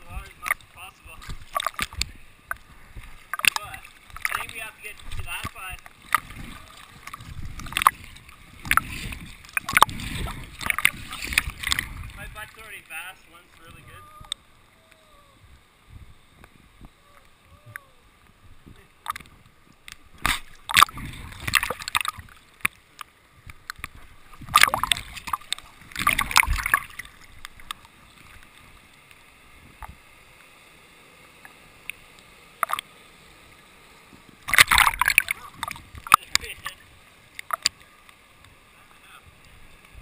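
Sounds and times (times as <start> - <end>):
river water splashing: 0.0 - 15.4, 17.0 - 40.0
water clicking on camera housing: 1.2 - 2.7, 3.3 - 6.4, 7.0 - 12.0, 19.0 - 28.5, 32.6 - 32.9, 34.4 - 38.5.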